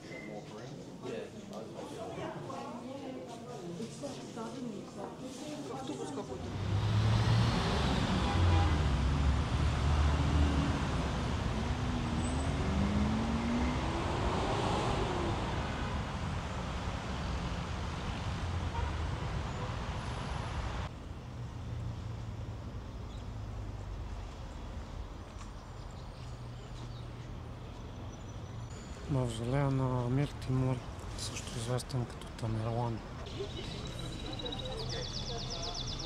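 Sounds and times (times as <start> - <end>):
passing cars: 6.1 - 36.0
vehicle engine accelerating: 6.4 - 24.6.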